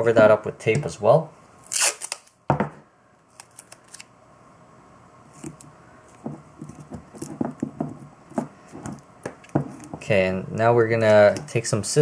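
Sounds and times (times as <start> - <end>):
tape crackling and tapping: 5.4 - 10.0.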